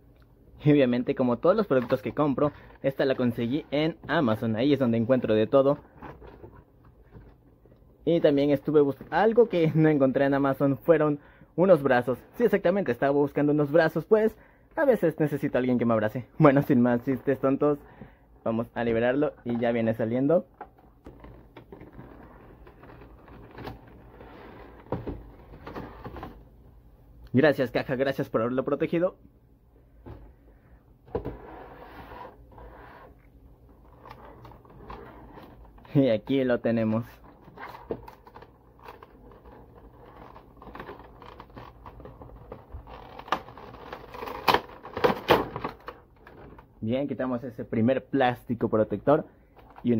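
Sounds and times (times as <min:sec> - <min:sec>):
cardboard sliding and scraping: 0:21.1 - 0:26.4, 0:31.1 - 0:33.2
plastic packaging crinkling: 0:37.1 - 0:46.7.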